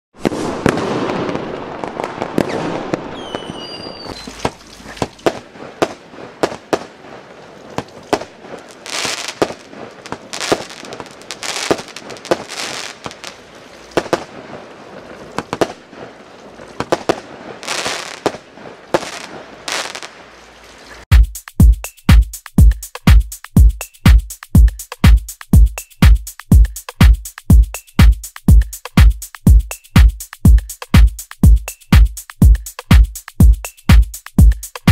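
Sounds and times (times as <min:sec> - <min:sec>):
firework rushing noise: 0:00.2 - 0:20.2
firework cracks: 0:00.2 - 0:21.0
firework hiss: 0:00.2 - 0:21.1.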